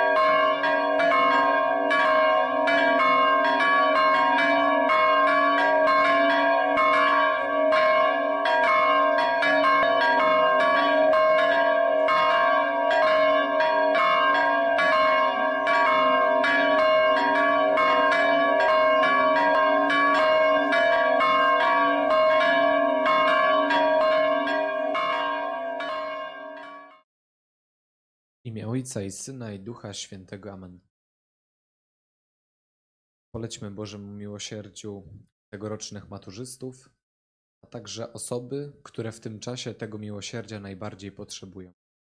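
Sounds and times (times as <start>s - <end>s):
church bells ringing: 0.0s - 27.0s.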